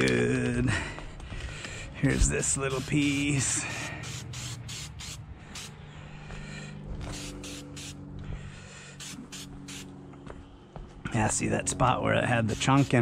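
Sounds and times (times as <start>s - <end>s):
spray can hissing in bursts: 2.1s - 5.7s, 7.1s - 8.0s, 9.0s - 9.9s, 12.4s - 13.0s.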